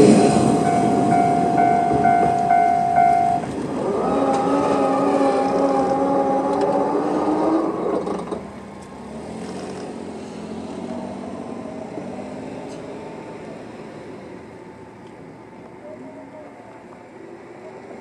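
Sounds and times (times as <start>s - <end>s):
level crossing alarm ringing: 0.0s - 6.4s
car driving over crossing: 0.0s - 15.8s
crossing barrier machines humming: 0.0s - 18.0s.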